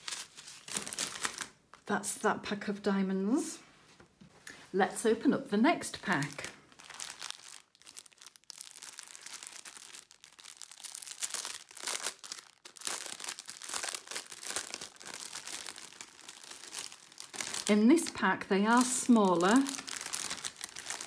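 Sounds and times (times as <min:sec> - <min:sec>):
plastic bags crinkling: 0:00.0 - 0:01.6, 0:05.9 - 0:21.0.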